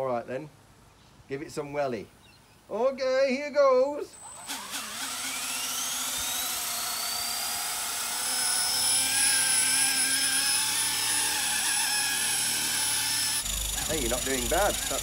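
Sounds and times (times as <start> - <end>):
rc helicopter rotor whine: 4.2 - 15.0.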